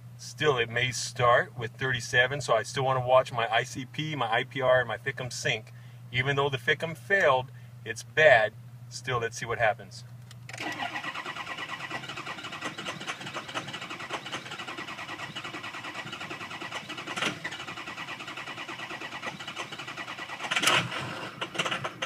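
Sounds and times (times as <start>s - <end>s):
diesel engine cranking on starter: 10.5s - 22.0s.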